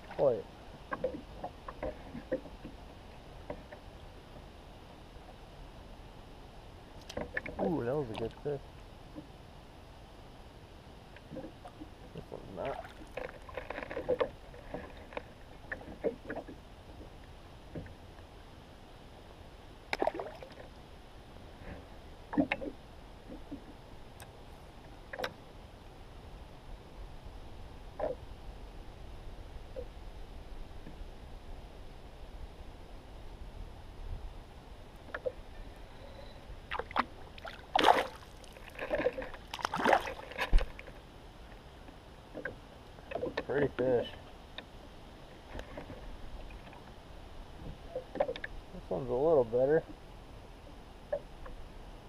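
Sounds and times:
water splashing beside kayak: 0:11.2 - 0:17.0, 0:19.9 - 0:20.7, 0:36.6 - 0:41.0
fish splashing into water: 0:36.7 - 0:38.8, 0:39.5 - 0:40.3.

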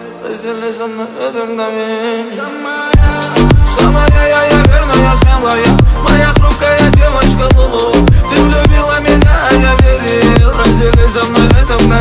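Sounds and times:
booming kick drums: 0:03.0 - 0:11.7.

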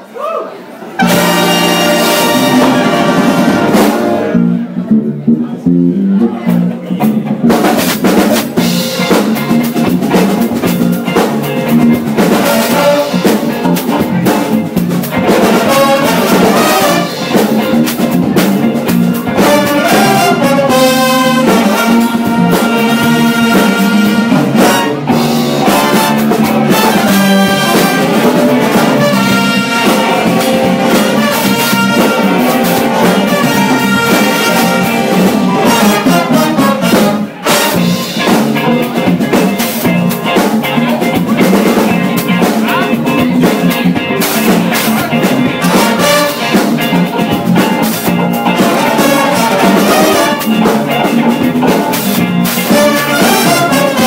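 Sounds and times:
jazz big band playing: 0:00.8 - 0:54.0
trumpets and trombones: 0:01.0 - 0:04.7, 0:12.2 - 0:13.6, 0:15.3 - 0:17.6, 0:19.4 - 0:38.3, 0:45.5 - 0:46.9, 0:48.5 - 0:50.8, 0:52.6 - 0:54.0
drum kit: 0:01.0 - 0:54.0.

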